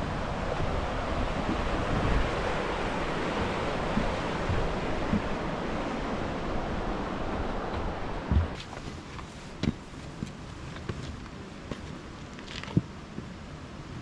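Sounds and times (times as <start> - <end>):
wind buffeting microphone: 0.0 - 8.6
river rushing: 0.0 - 10.6.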